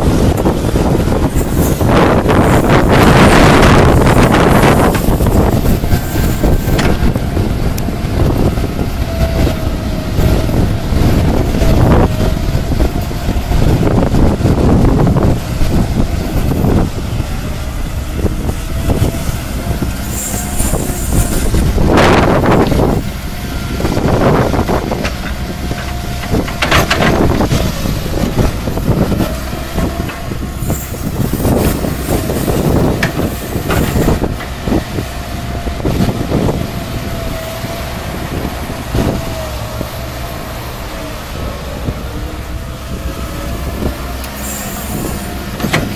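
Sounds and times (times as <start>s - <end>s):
excavator diesel engine whining: 0.0s - 45.9s.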